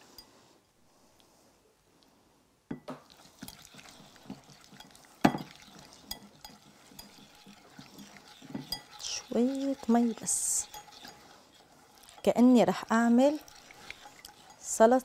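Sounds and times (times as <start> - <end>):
whisk clinking in bowl: 3.1 - 15.0.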